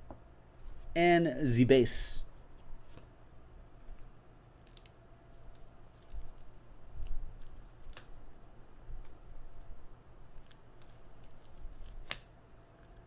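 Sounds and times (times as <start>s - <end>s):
cards handled on a table: 2.6s - 3.1s, 10.2s - 13.0s.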